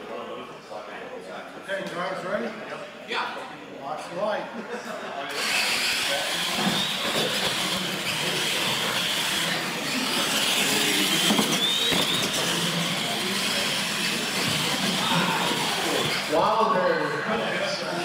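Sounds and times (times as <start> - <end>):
electric motors whining: 5.3 - 18.0.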